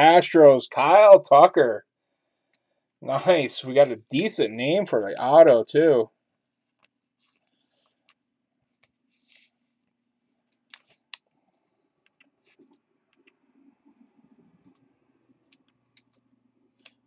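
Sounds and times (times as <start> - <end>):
small clicks: 10.4 - 13.4, 15.4 - 17.0.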